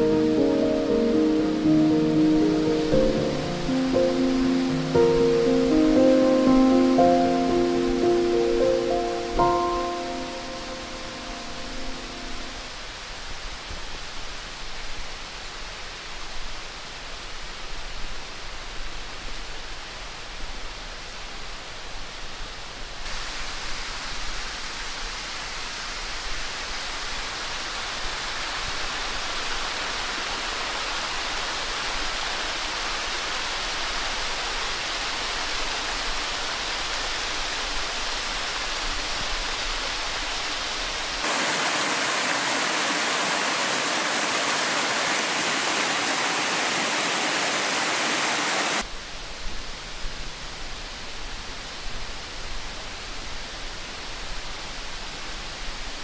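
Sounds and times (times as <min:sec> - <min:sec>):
running water rushing: 0:00.0 - 0:16.9, 0:23.1 - 0:48.9.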